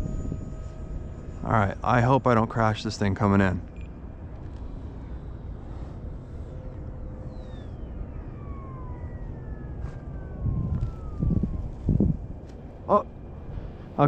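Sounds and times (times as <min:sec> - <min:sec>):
electric ducted fan whining: 0:00.0 - 0:14.0
wind rumble on microphone: 0:00.0 - 0:14.0.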